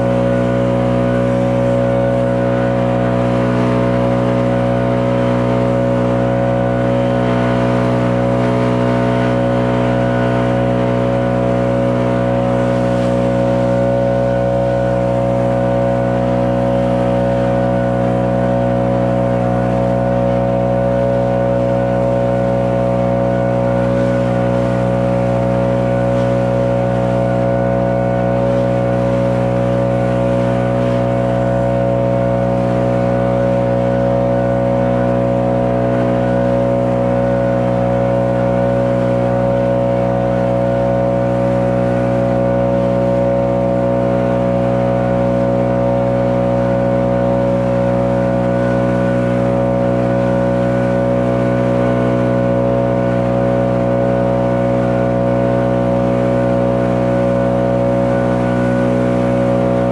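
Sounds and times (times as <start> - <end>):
leaf blower engine running: 0.0 - 59.9.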